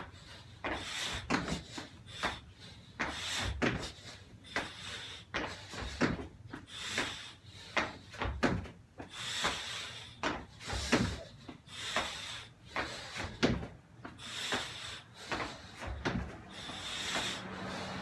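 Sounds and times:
thuds on rubber mat: 0:08.2 - 0:08.8, 0:12.8 - 0:13.8, 0:15.3 - 0:16.4.

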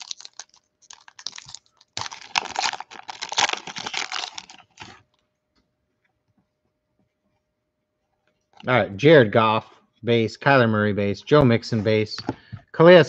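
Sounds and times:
foil wrapper tearing and crinkling: 0:00.0 - 0:05.0.

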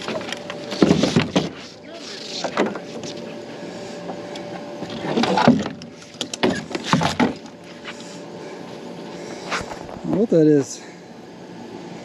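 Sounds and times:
metal clunks and scraping: 0:00.0 - 0:03.3, 0:04.8 - 0:07.5.

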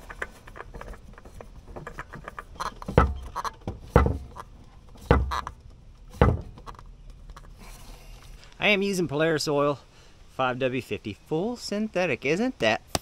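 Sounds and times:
thumps: 0:00.0 - 0:07.6.

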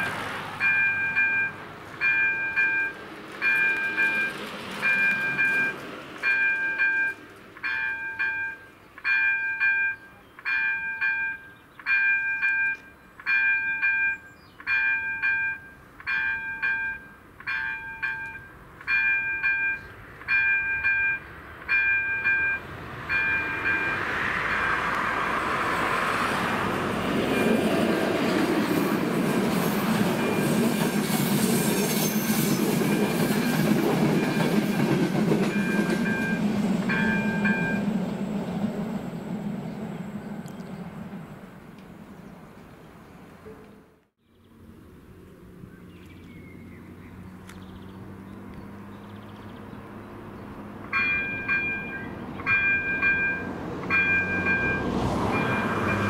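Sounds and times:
passenger train passing: 0:00.0 - 0:44.0, 0:46.8 - 0:56.0
level-crossing warning bell beeps: 0:00.6 - 0:24.7, 0:27.3 - 0:27.7, 0:30.1 - 0:31.0, 0:32.1 - 0:38.0, 0:50.9 - 0:56.0.

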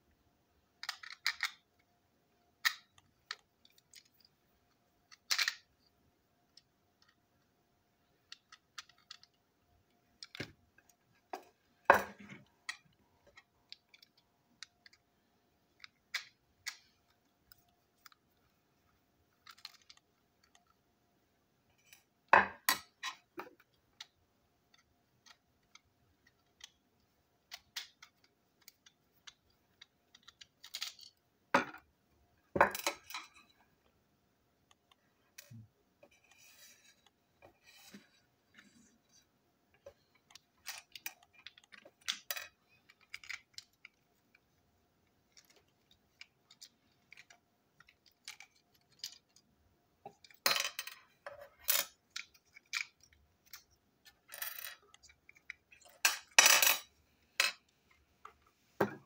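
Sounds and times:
plastic parts clicking: 0:00.8 - 0:01.9, 0:02.6 - 0:04.3, 0:05.1 - 0:05.7, 0:08.2 - 0:09.4, 0:10.1 - 0:11.0, 0:12.3 - 0:15.1, 0:19.3 - 0:20.8, 0:22.7 - 0:26.8, 0:27.4 - 0:31.2, 0:39.8 - 0:44.4, 0:45.3 - 0:49.5, 0:51.7 - 0:56.8.

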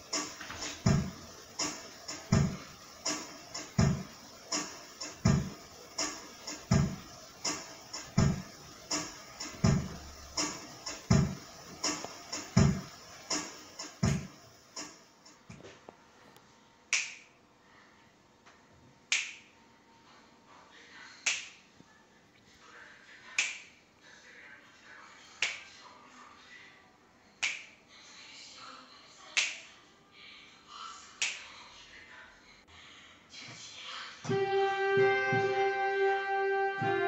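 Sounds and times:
faint background music: 0:00.0 - 0:37.0
finger snaps: 0:16.9 - 0:17.3, 0:19.1 - 0:19.5, 0:21.2 - 0:21.6, 0:23.4 - 0:23.7, 0:25.4 - 0:25.6, 0:27.4 - 0:27.7, 0:29.4 - 0:29.6, 0:31.2 - 0:31.4.

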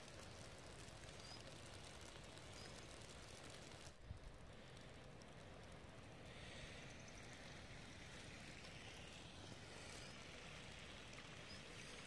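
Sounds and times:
soft hiss: 0:00.0 - 0:12.0.

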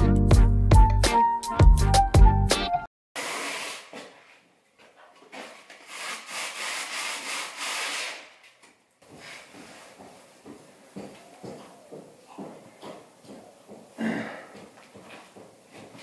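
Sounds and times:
background music: 0:00.0 - 0:02.9.

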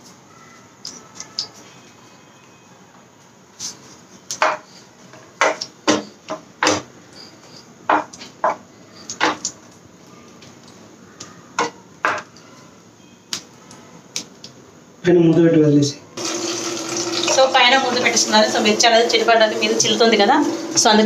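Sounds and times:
chillies popping in hot oil: 0:07.9 - 0:09.6.

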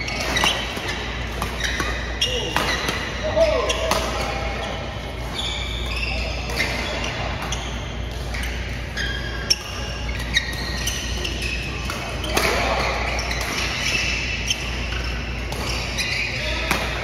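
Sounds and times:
shoes squeaking on court: 0:00.0 - 0:17.0
racket hitting shuttlecock: 0:00.2 - 0:04.5, 0:11.8 - 0:17.0.

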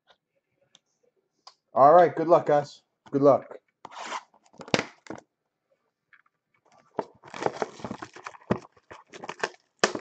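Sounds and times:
wrapper crinkling and tearing: 0:07.1 - 0:10.0.

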